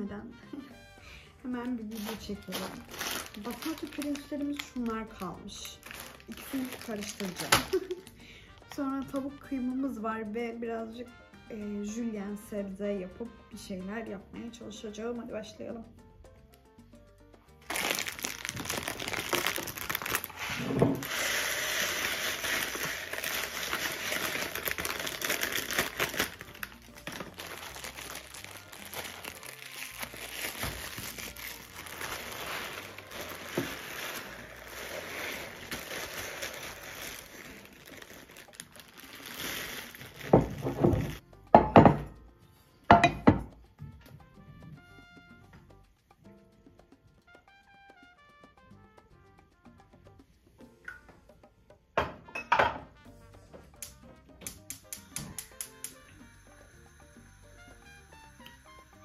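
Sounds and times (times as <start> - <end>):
plastic bag crinkling: 1.1 - 9.3, 17.6 - 41.2
rice pouring into glass jug: 17.7 - 41.2.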